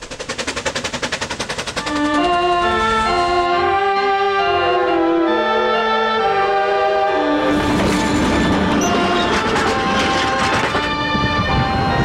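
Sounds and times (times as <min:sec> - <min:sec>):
fast even clatter: 0:00.0 - 0:03.0, 0:07.7 - 0:10.9
electronic organ chords: 0:02.1 - 0:12.0.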